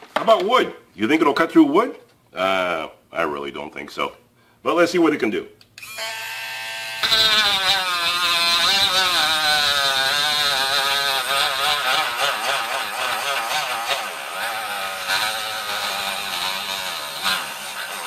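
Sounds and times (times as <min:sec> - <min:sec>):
rotary tool cutting wood: 0:05.8 - 0:18.0.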